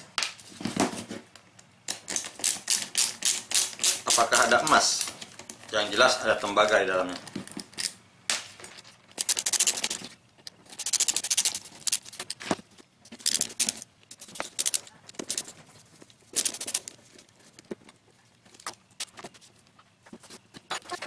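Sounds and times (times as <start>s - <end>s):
screwdriver rapid clicking: 9.2s - 10.0s, 10.7s - 12.1s.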